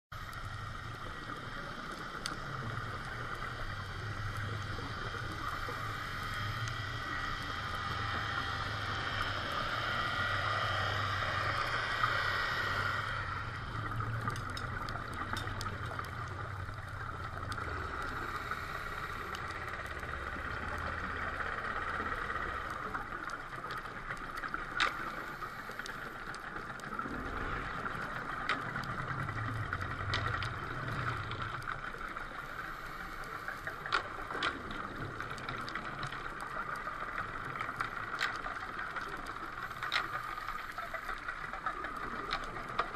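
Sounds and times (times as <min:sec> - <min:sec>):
underwater hiss: 0:00.2 - 0:13.6, 0:17.6 - 0:19.8, 0:24.9 - 0:26.2
low underwater rumbling: 0:00.2 - 0:42.9.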